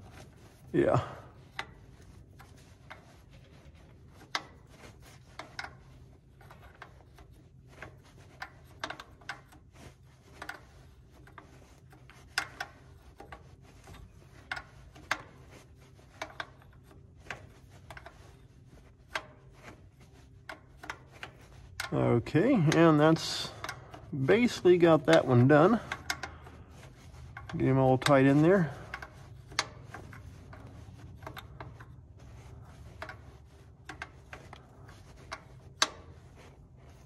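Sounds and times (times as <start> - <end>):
steady low hum: 0.0 - 37.0
wrench clicking on metal: 25.0 - 26.8.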